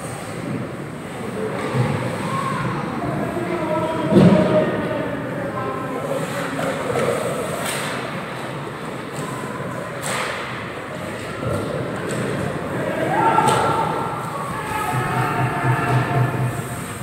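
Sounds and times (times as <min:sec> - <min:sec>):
faint shouts: 0:12.8 - 0:16.6.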